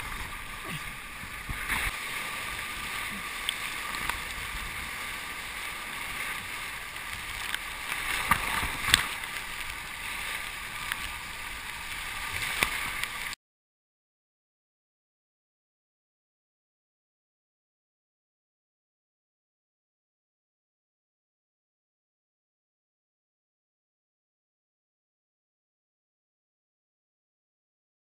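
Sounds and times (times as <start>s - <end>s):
sea surf rushing and sloshing: 0.0s - 13.4s.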